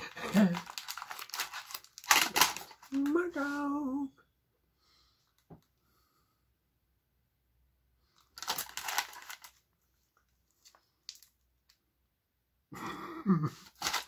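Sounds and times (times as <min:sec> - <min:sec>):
plastic package crinkling: 0:00.0 - 0:03.3, 0:08.2 - 0:09.7, 0:10.6 - 0:11.4, 0:13.6 - 0:14.0.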